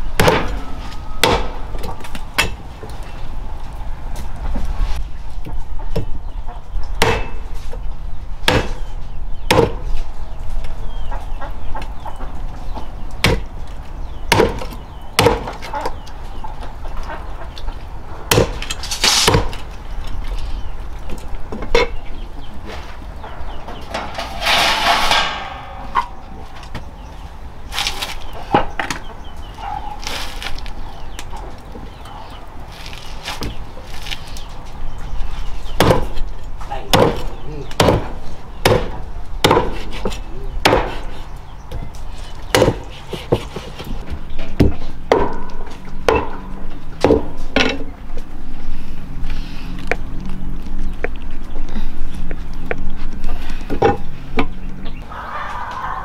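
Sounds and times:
chopping wood: 0:00.2 - 0:00.6, 0:01.2 - 0:02.6, 0:07.0 - 0:07.4, 0:08.4 - 0:08.8, 0:09.5 - 0:09.8, 0:13.2 - 0:13.5, 0:14.3 - 0:15.6, 0:18.3 - 0:19.6, 0:35.8 - 0:36.2, 0:36.9 - 0:40.0, 0:40.6 - 0:41.1, 0:42.5 - 0:43.5, 0:44.6 - 0:45.5, 0:47.0 - 0:47.7
chickens clucking: 0:28.2 - 0:30.1, 0:54.8 - 0:56.0
rooster crowing: 0:55.0 - 0:56.0.

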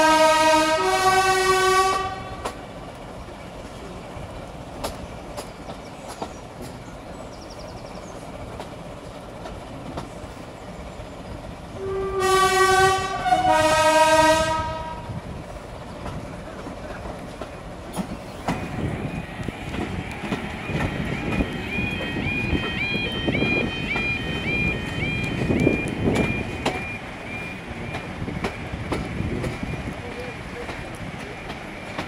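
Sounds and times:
two-tone locomotive horn: 0:00.0 - 0:02.6, 0:11.7 - 0:15.2, 0:21.2 - 0:27.0
wheels clicking over rail joints: 0:08.2 - 0:11.7, 0:15.7 - 0:18.7.

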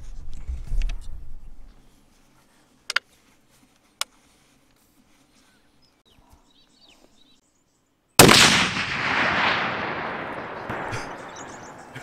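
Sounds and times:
faint bird chirps: 0:11.2 - 0:12.0.

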